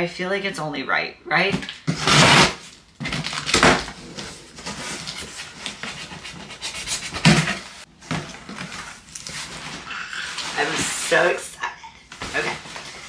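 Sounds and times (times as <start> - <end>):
cardboard box tearing: 1.8 - 7.7
rustling of flaps and packing: 7.0 - 11.4, 12.1 - 13.0.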